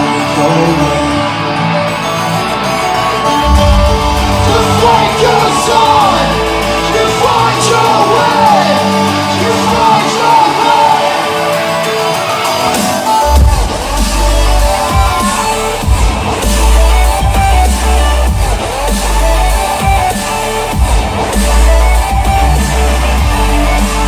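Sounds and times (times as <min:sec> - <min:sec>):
electronic dance music: 0:00.0 - 0:24.0
deep bass notes: 0:03.3 - 0:10.3, 0:13.2 - 0:24.0
person singing: 0:03.4 - 0:17.8.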